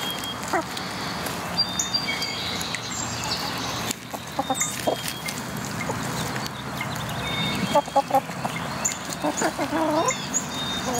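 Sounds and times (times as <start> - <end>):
hens pecking and scratching: 0.0 - 10.9
hens clucking: 0.2 - 1.0, 3.2 - 10.9.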